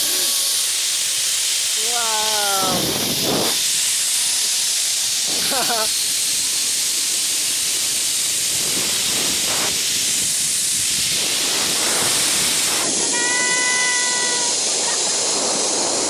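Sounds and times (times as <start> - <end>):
high multi-tone whine: 0.0 - 16.0
zipline trolley hissing: 0.0 - 16.0
wind rushing over microphone: 2.2 - 4.0, 7.8 - 16.0.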